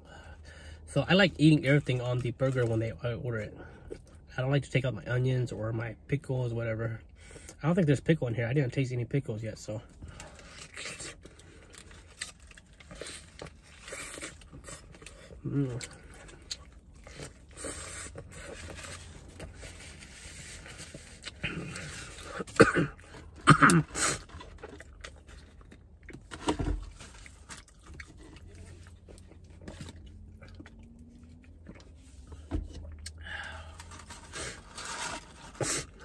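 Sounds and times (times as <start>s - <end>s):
person chewing food: 10.3s - 23.4s, 24.2s - 34.7s.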